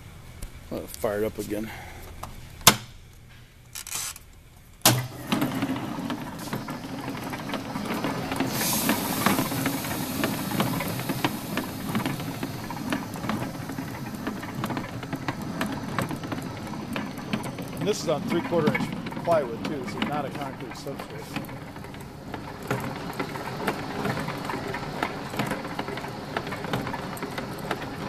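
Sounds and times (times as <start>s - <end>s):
steel wheels rumbling on tile: 5.1s - 28.0s.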